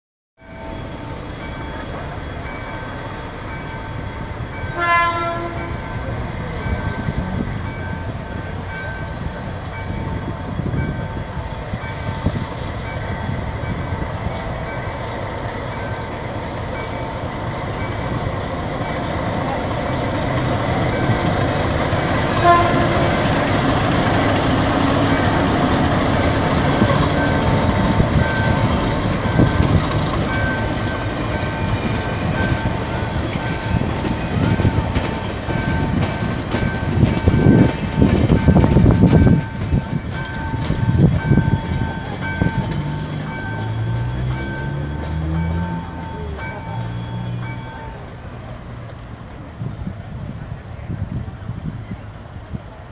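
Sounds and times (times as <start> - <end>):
diesel locomotive engine running: 0.5 - 52.9
train horn blasts: 4.7 - 6.0, 22.2 - 23.5
level-crossing bell dinging: 25.0 - 38.0, 39.1 - 48.3.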